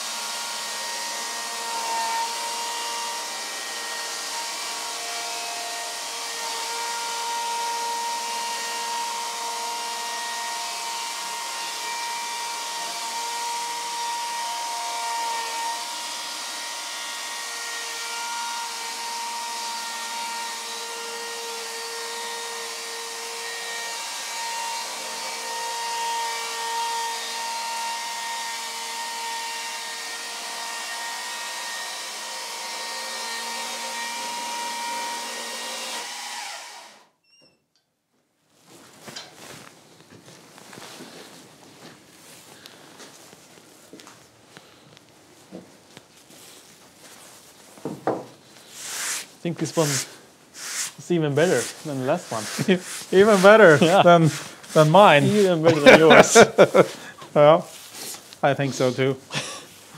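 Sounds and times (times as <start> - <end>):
electric chainsaw cutting log: 0.0 - 37.1, 48.9 - 57.6.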